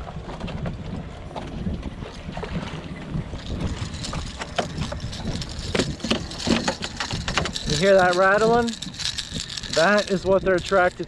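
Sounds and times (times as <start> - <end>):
water against boat hull: 0.0 - 11.0
wind buffeting microphone: 0.0 - 11.0.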